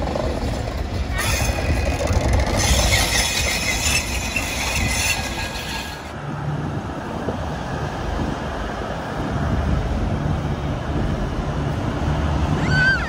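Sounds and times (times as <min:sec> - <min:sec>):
train wheels on rails: 0:00.0 - 0:06.2
diesel railcar passing: 0:00.0 - 0:13.0.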